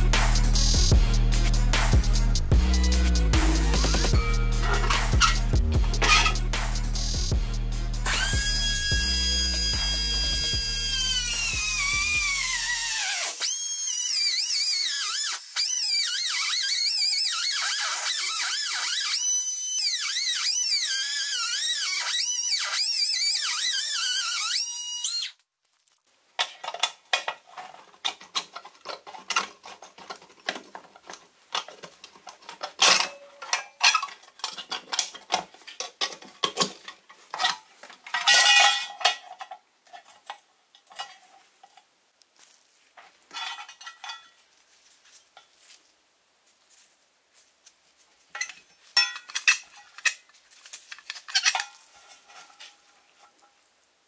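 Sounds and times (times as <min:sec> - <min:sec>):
metal scrape: 0:00.0 - 0:13.4, 0:48.4 - 0:53.7
power drill whining into metal: 0:08.1 - 0:25.4
metallic clicks of small parts: 0:48.4 - 0:51.9.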